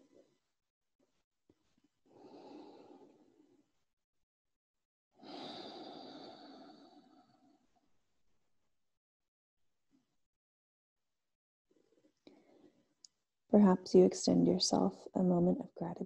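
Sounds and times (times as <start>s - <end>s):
woman breathing softly: 2.1s - 3.6s, 5.2s - 7.6s, 12.3s - 12.9s.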